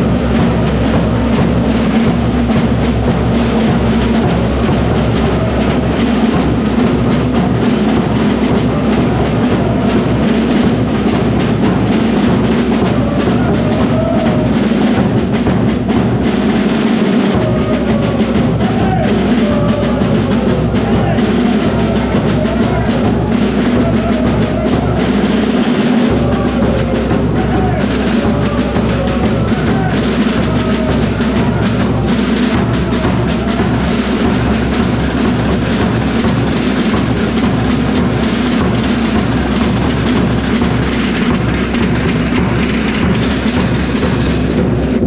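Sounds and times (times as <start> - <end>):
bass drum beating: 0.0 - 16.6, 17.2 - 45.0
live band playing loud: 0.0 - 45.0.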